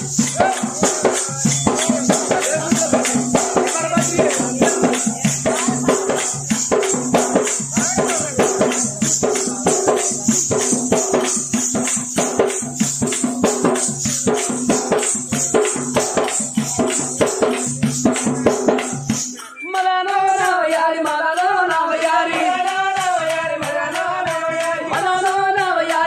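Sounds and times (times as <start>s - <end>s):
fast drum strokes: 0.0s - 19.4s
metallic jingle: 0.0s - 19.7s.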